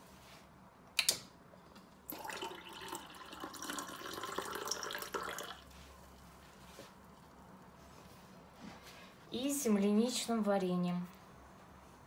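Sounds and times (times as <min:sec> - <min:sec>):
liquid pouring into glass mug: 0:02.1 - 0:05.7.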